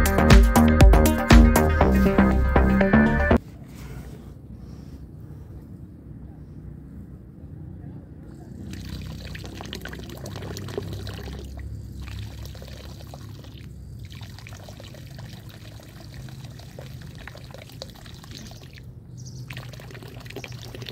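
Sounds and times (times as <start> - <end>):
water jet splashing from hose: 8.4 - 20.9.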